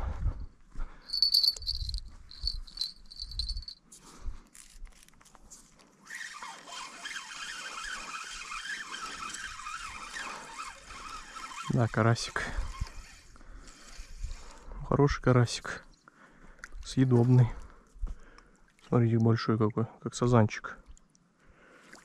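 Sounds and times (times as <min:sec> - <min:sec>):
fishing reel rattling: 0:01.1 - 0:03.8, 0:06.1 - 0:14.6.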